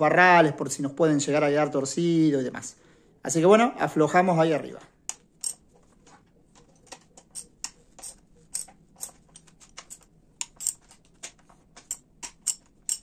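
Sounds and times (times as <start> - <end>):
wrench clicking on bolts: 5.1 - 5.6, 7.2 - 13.0.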